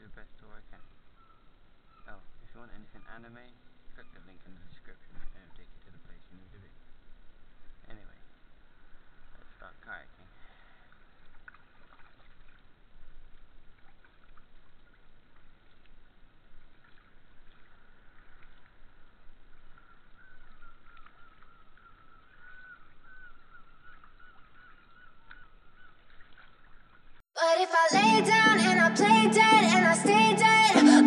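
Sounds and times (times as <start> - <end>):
water drips: 10.7 - 27.2
paddle splashing in water: 10.8 - 27.2.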